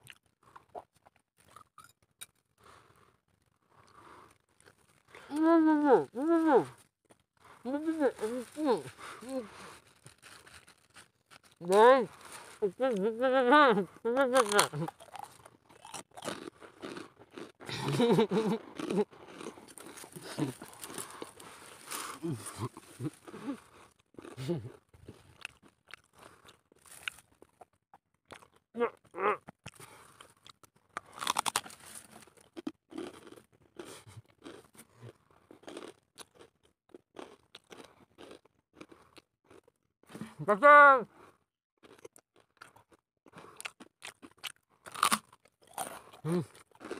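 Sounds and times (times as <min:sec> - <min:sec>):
crunching and crackling: 0:00.0 - 0:05.3, 0:06.7 - 0:13.0, 0:14.2 - 0:38.4
crunching and rustling brush: 0:08.1 - 0:12.6, 0:19.6 - 0:23.3.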